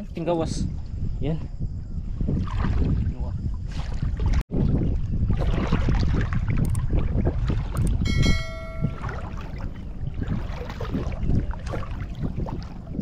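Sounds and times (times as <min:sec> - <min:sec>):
wind rumbling on microphone: 0:00.0 - 0:13.0
water sloshing and splashing: 0:02.0 - 0:13.0
short electronic chime: 0:08.1 - 0:09.5.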